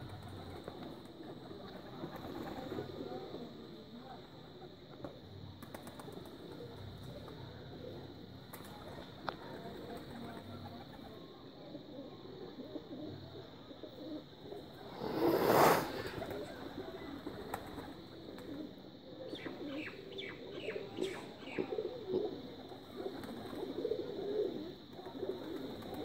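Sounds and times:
pigeons cooing: 9.7 - 26.0.

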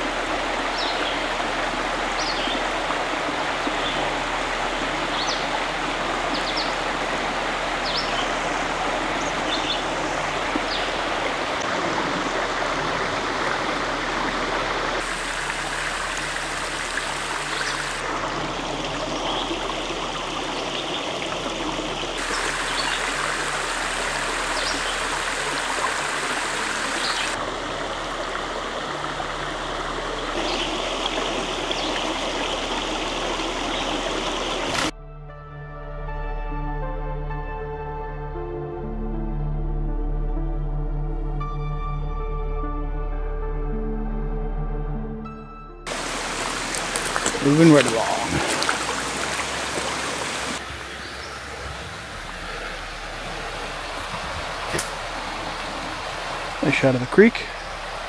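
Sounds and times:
creek flowing: 0.0 - 34.9, 45.9 - 58.0.

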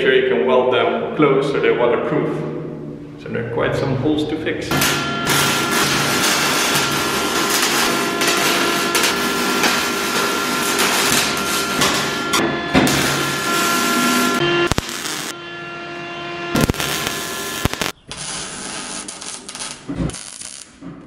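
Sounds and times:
arc welding crackling sizzle: 4.7 - 15.4, 16.6 - 20.8.

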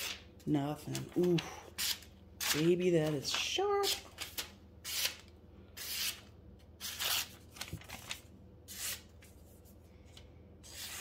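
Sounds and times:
knife slicing paper: 6.8 - 9.1, 10.6 - 11.0.

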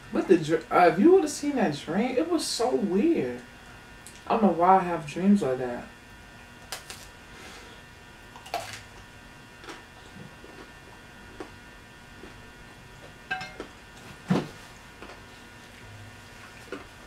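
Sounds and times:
chewing pizza crust: 8.4 - 17.0.

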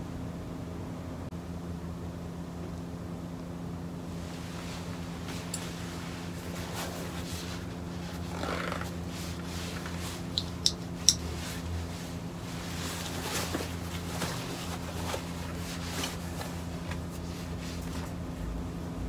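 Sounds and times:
steady low hum: 0.0 - 19.0
soft handling of neoprene: 4.1 - 10.4, 11.3 - 18.6.

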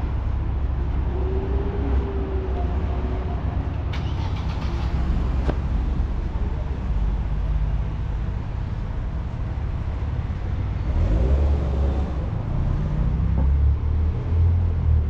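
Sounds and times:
vehicle engines rumbling: 0.0 - 15.0.

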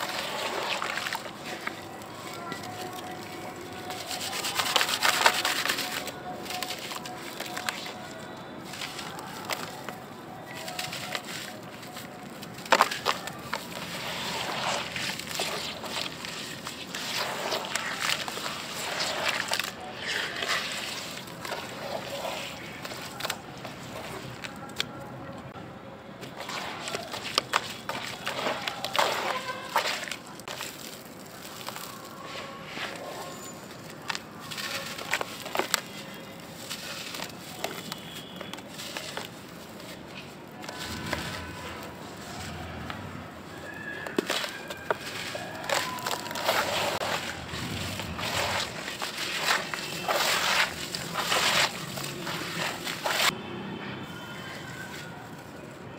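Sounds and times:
gritty sloshing and squelching: 0.0 - 24.8, 26.2 - 53.4
chalk blocks cracking: 0.0 - 25.4, 26.2 - 53.4
water sloshing: 26.3 - 32.1, 44.3 - 53.3.

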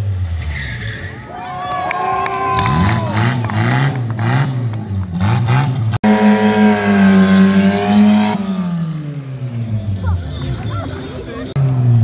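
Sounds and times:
car engine revving: 2.6 - 12.0.

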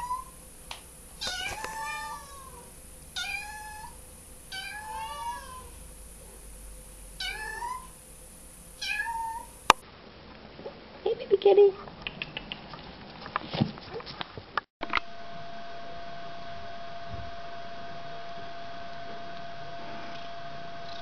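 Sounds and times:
kitten meowing: 0.0 - 0.4, 1.2 - 5.8, 7.2 - 7.9, 8.8 - 9.7.

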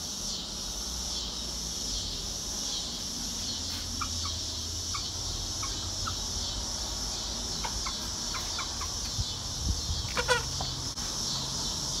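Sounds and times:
steady high hiss: 0.0 - 12.0
rooster clucking: 7.5 - 9.1, 10.1 - 10.8.

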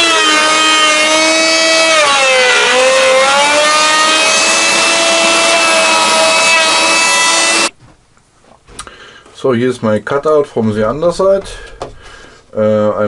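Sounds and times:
router cutting wood: 0.0 - 7.7.

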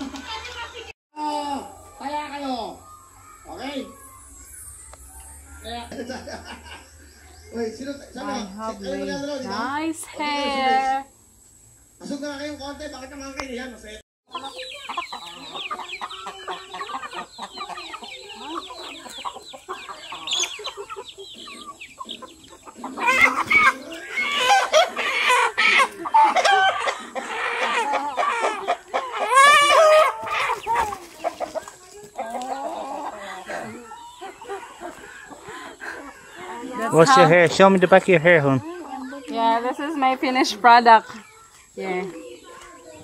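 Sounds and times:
chickens clucking and peeping: 0.0 - 43.0
hen squawking and cackling: 14.3 - 37.2.

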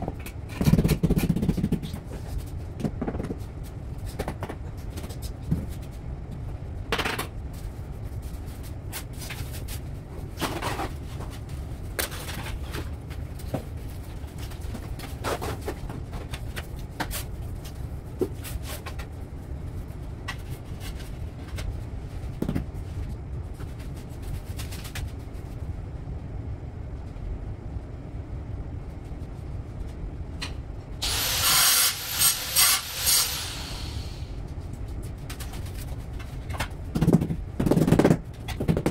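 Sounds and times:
hand tools scraping on tile: 31.0 - 34.2
rapid sharp high sounds: 31.0 - 34.3.

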